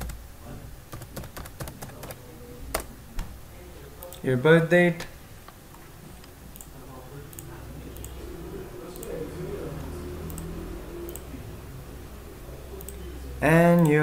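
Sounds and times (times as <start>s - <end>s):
low background hum: 0.0s - 14.0s
computer mouse clicking: 6.2s - 8.2s, 8.9s - 9.2s, 10.2s - 10.5s, 11.1s - 11.3s, 12.8s - 13.1s, 13.7s - 14.0s.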